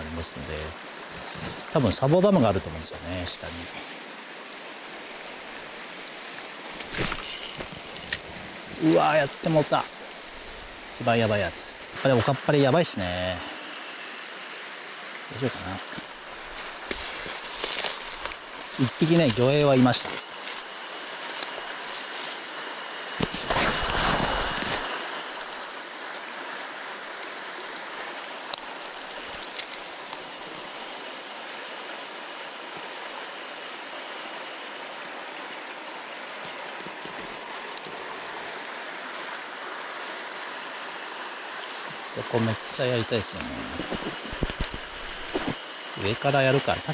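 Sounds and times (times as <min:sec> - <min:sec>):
river water rushing: 0:00.6 - 0:46.9.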